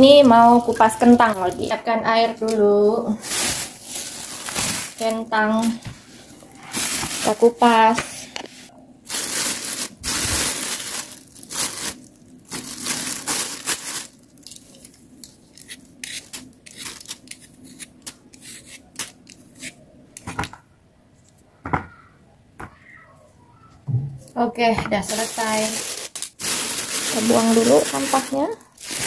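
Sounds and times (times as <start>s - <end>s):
plastic bag crinkling: 0.1s - 8.4s, 9.1s - 18.2s, 25.0s - 29.0s
peeler scraping potato skin: 15.5s - 19.8s.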